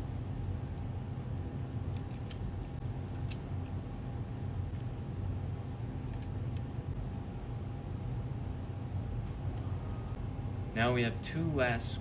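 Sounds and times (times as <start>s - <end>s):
steady low hum: 0.0s - 12.0s
allen key clicking on screw: 1.9s - 3.5s.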